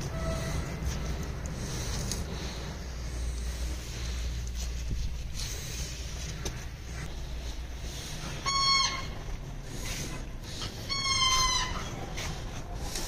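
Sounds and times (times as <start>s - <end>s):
faint background noise: 0.0s - 13.0s
high-pitched animal calls: 8.4s - 9.3s, 10.6s - 12.3s.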